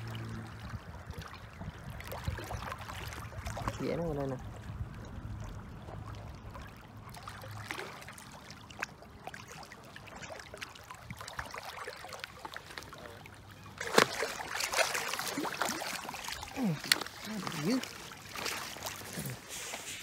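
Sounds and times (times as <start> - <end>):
water lapping and splashing: 0.0 - 20.0
fish splashing into net: 13.8 - 20.0.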